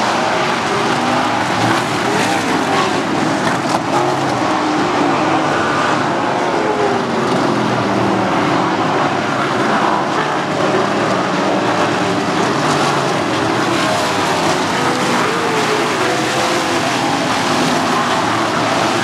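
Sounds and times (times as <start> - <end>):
race car engines passing by: 0.0 - 19.0.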